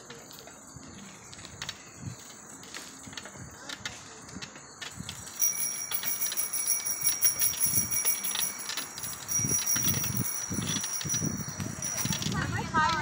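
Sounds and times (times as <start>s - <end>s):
bicycle bell ringing: 5.1s - 13.0s.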